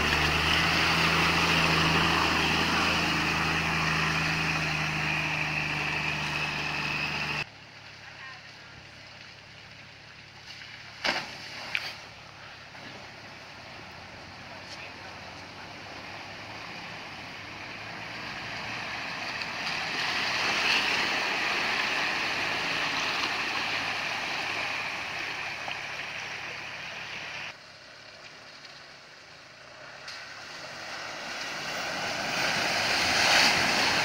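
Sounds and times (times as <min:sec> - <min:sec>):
car engine running: 0:00.0 - 0:08.0
floodwater surging and sloshing: 0:00.0 - 0:29.0, 0:29.6 - 0:34.0
vehicle splashing through water: 0:00.0 - 0:34.0.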